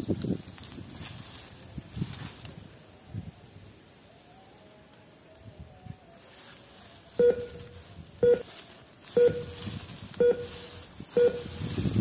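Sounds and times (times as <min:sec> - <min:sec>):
short electronic beeps: 0:07.2 - 0:08.5, 0:09.1 - 0:11.8.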